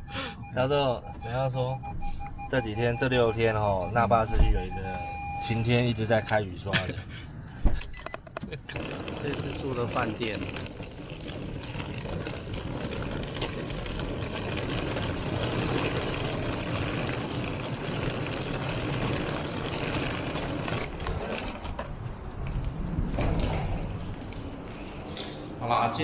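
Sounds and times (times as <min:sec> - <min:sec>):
mechanical running noise: 0:08.7 - 0:21.5.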